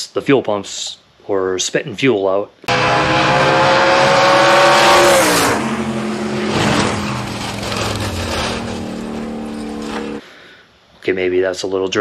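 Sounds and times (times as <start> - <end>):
engine drone: 2.7 - 10.2
loud rush of noise: 2.7 - 10.2.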